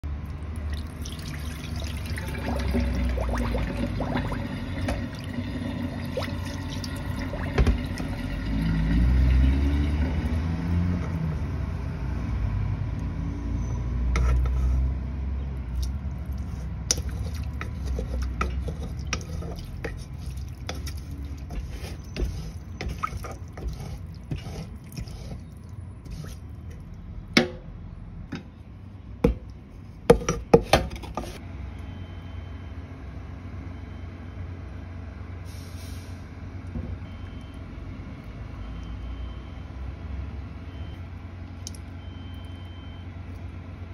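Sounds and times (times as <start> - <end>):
water pouring out of pot: 0.5 - 10.4
wooden spatula scraping pot: 14.0 - 15.0, 16.4 - 26.8, 30.1 - 31.4.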